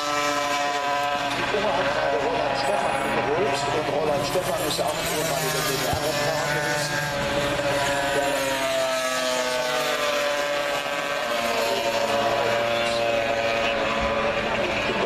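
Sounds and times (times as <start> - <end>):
motorcycles passing at high revs: 0.0 - 15.0.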